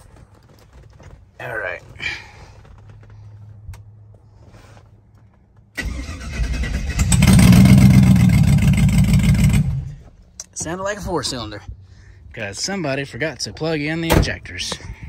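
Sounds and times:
engine starter cranking: 0:05.8 - 0:09.9
rough engine idling: 0:07.0 - 0:10.1.

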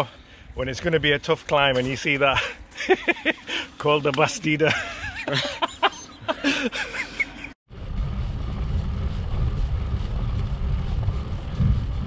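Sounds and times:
voices and laughter: 0:02.3 - 0:03.8, 0:04.5 - 0:07.6
wind buffeting microphone: 0:07.7 - 0:12.0.

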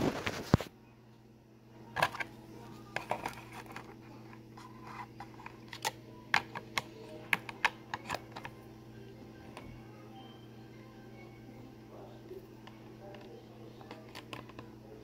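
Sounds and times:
plastic clicks and taps: 0:05.7 - 0:08.5.

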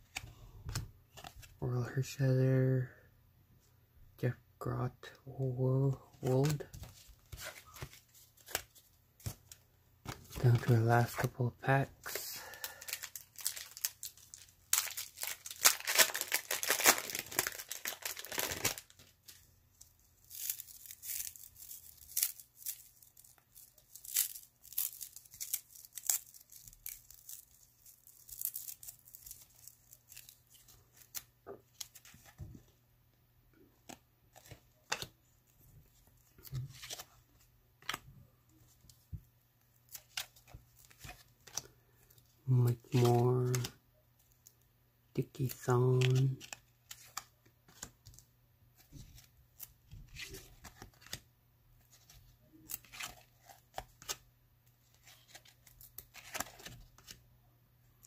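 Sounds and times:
soft crackles of wrapper and cards: 0:05.0 - 0:32.7, 0:33.8 - 0:57.2
wrapper crinkling and tearing: 0:12.0 - 0:19.4, 0:20.2 - 0:32.0.

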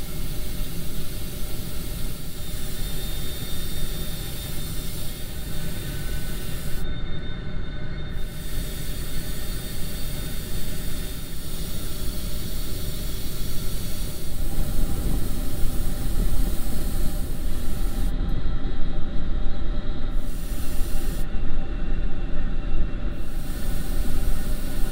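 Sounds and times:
airbrush spraying hiss: 0:00.0 - 0:06.8, 0:08.2 - 0:18.1, 0:20.1 - 0:21.3, 0:23.2 - 0:24.9.

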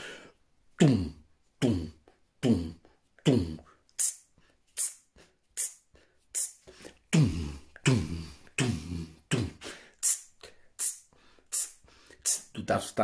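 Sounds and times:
beatbox voiced hits: 0:00.8 - 0:04.2, 0:04.8 - 0:05.0, 0:05.6 - 0:05.8, 0:06.4 - 0:12.6
beatbox hi-hat hisses: 0:04.0 - 0:04.2, 0:04.8 - 0:06.7, 0:10.0 - 0:12.6.

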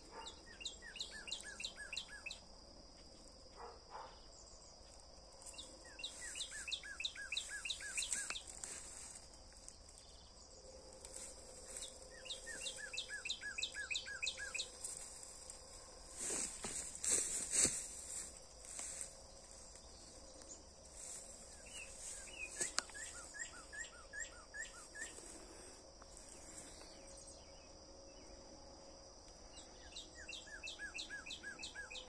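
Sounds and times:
songbird singing: 0:00.0 - 0:32.0
high-pitched insect drone: 0:10.3 - 0:27.6.

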